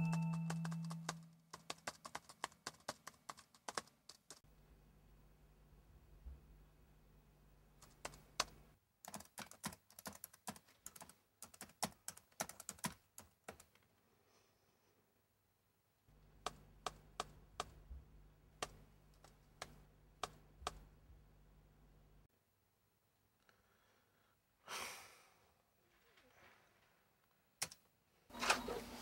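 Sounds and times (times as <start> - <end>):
typing on laptop keyboard: 0.0 - 4.4, 7.8 - 13.8, 16.4 - 17.8, 18.6 - 20.8, 27.6 - 27.8.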